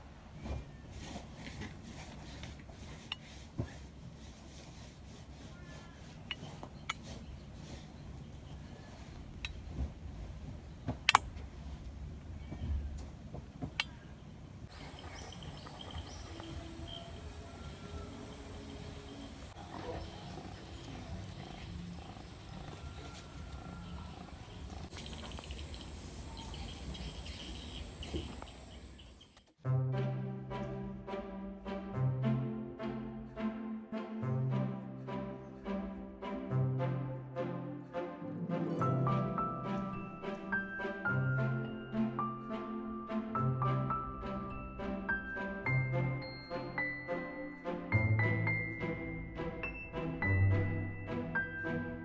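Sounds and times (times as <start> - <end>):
high-pitched insect drone: 15.1 - 19.5.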